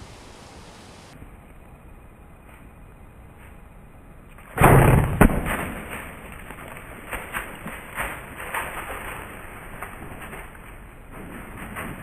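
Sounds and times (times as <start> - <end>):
sharp crack: 4.4 - 8.9.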